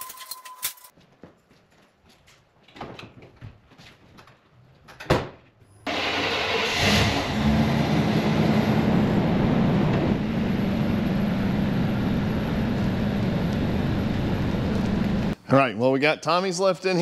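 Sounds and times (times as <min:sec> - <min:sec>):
truck engine starting and running: 0:05.8 - 0:15.4.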